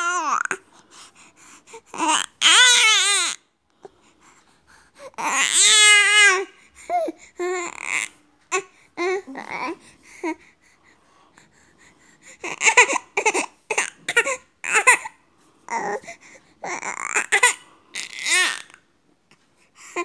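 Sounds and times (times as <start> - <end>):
baby babbling: 0.0 - 0.6, 1.9 - 3.4, 5.1 - 10.4, 15.7 - 18.8.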